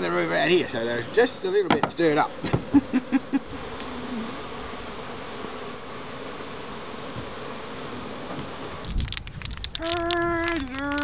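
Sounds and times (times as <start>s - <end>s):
bees buzzing: 0.0s - 11.0s
knocks: 1.7s - 2.7s.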